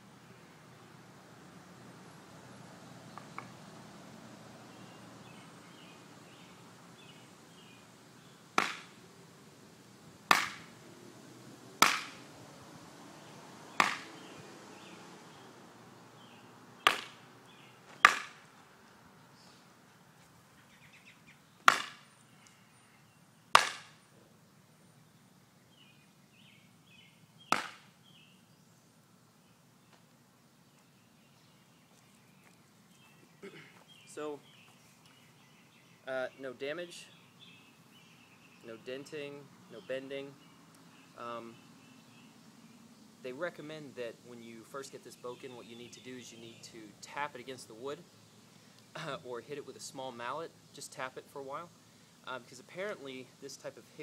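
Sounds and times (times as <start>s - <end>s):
wooden sword whacking tree trunk: 8.6s - 8.9s, 10.3s - 10.7s, 11.8s - 12.2s, 13.8s - 14.1s, 16.8s - 17.2s, 18.0s - 18.4s, 21.6s - 22.1s, 23.5s - 24.0s, 27.5s - 27.9s.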